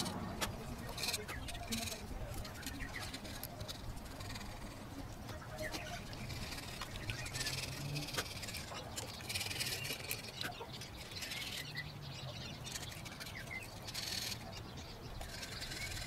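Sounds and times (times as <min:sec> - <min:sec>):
scraper rasping on metal: 0:00.8 - 0:04.9, 0:15.2 - 0:16.0.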